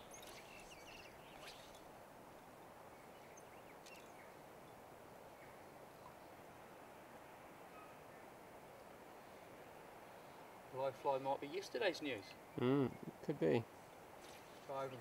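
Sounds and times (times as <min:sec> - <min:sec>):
faint bird chirps: 0:00.0 - 0:01.9, 0:02.9 - 0:06.4, 0:07.6 - 0:08.3
faint outdoor hiss: 0:00.0 - 0:15.0.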